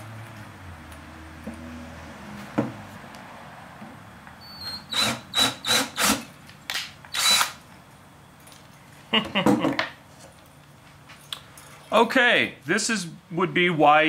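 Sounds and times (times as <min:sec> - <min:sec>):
cordless drill whining into metal: 0:04.4 - 0:06.3, 0:07.1 - 0:07.6.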